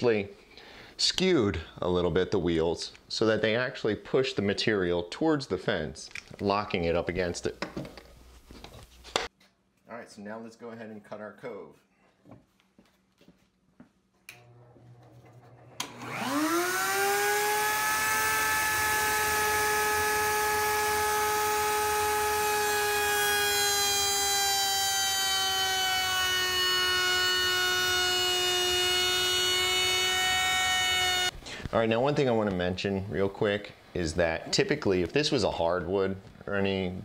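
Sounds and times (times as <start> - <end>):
router high whine: 15.4 - 31.3.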